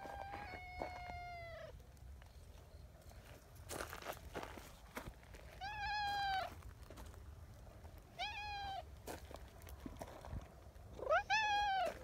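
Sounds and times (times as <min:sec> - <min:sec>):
cat meowing: 0:00.0 - 0:01.7, 0:08.2 - 0:08.8, 0:11.0 - 0:12.0.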